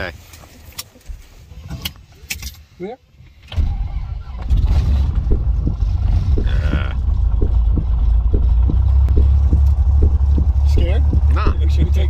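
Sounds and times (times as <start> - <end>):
propeller airplane engine idling: 4.5 - 12.0.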